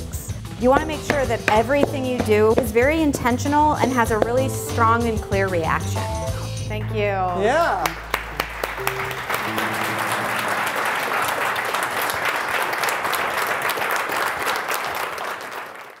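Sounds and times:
background music held notes: 0.0 - 12.1
audience applauding: 7.8 - 16.0.

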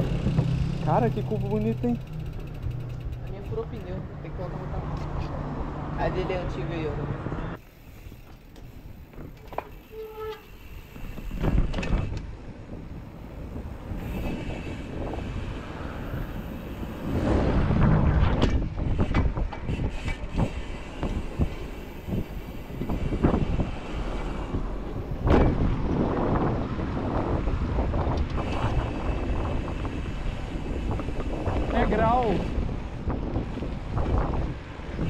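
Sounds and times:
bicycle riding rumble: 0.0 - 35.0.

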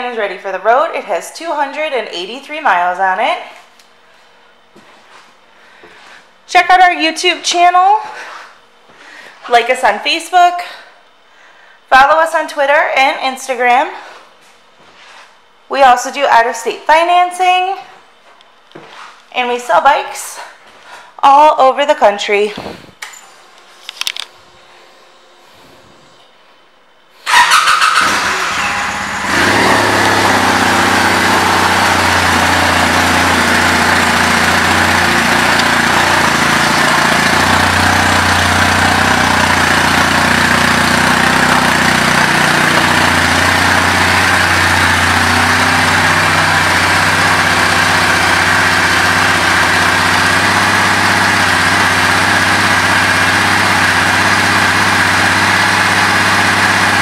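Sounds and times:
electric starter: 27.2 - 57.0
motorcycle engine idling: 27.2 - 57.0.

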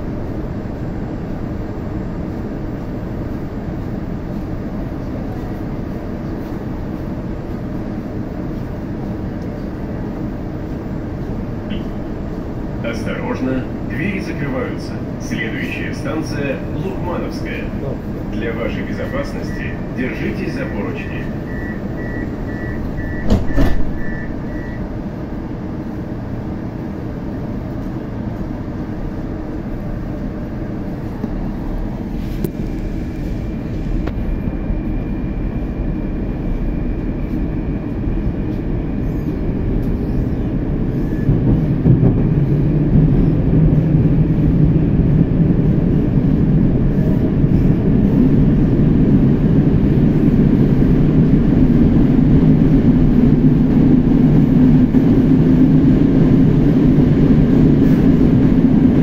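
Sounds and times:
train running noise: 0.0 - 59.0
deep hum: 17.6 - 26.0
door-warning beeps: 21.2 - 24.9
train doors thumping shut: 23.0 - 24.3.

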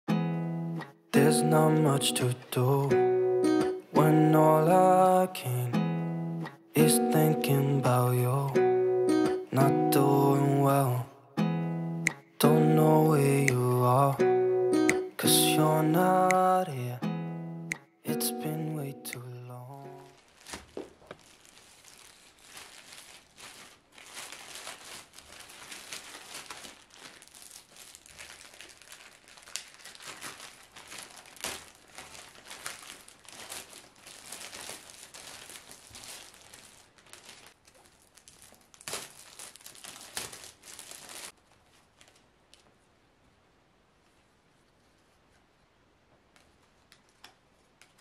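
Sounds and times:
plastic bag crinkling: 20.0 - 42.7.

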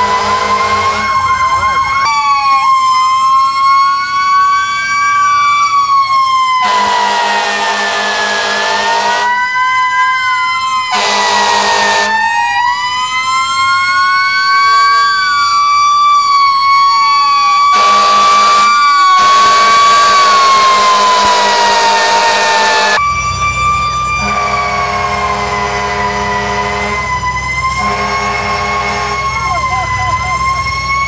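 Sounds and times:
loud horn blasts: 0.0 - 1.2, 6.6 - 9.3, 10.9 - 12.2, 14.7 - 15.2, 17.7 - 23.0, 24.2 - 27.1, 27.7 - 29.6
fire engine sirens wailing: 0.0 - 31.0.

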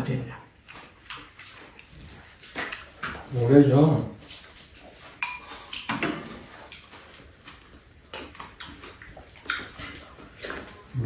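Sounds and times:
spoons clinking against ceramic bowls: 5.2 - 6.2.

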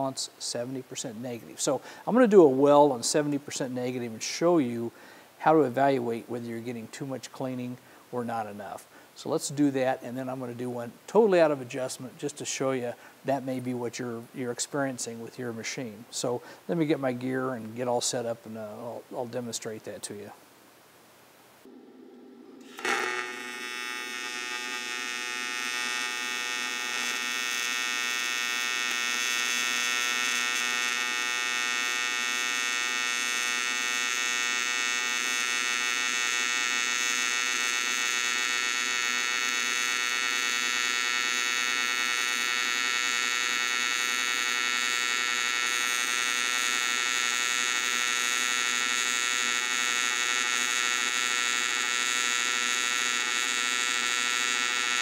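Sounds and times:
welding arc buzzing: 21.6 - 55.0.

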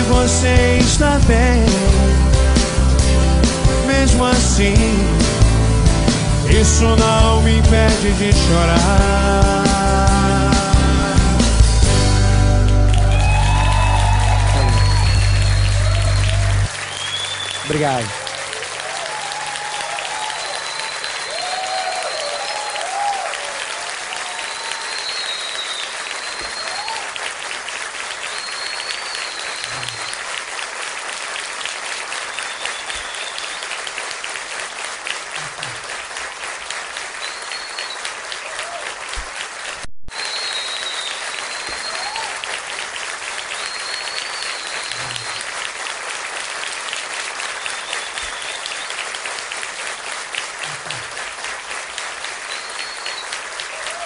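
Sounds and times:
crowd applauding: 0.0 - 54.0
high whistles: 13.0 - 18.1, 20.0 - 23.3, 24.2 - 27.2, 28.2 - 30.3, 32.2 - 33.8, 37.2 - 38.2, 40.1 - 42.4, 43.5 - 45.4, 47.4 - 49.1, 52.4 - 54.0.

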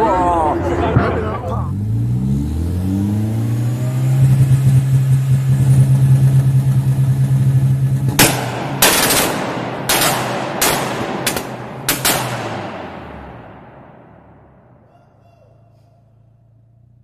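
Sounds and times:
car engine revving: 0.0 - 14.8
loud exhaust bangs: 0.0 - 15.2.

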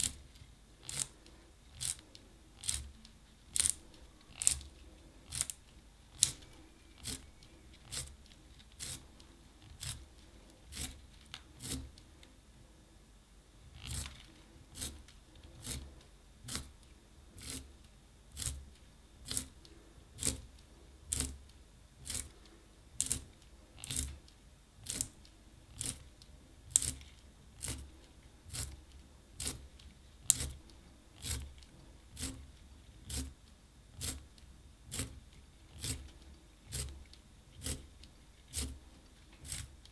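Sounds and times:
pencil sharpener shaving wood: 0.8 - 2.9, 6.2 - 9.1, 10.7 - 12.0, 13.8 - 15.9, 17.4 - 17.7, 22.0 - 22.4, 26.7 - 28.8, 29.4 - 33.4, 34.0 - 34.3, 34.9 - 39.8.

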